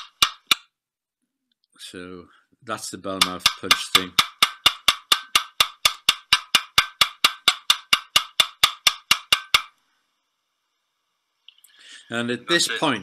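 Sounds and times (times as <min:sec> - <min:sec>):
hammer tapping metal punch: 0:00.0 - 0:00.6, 0:03.1 - 0:09.7.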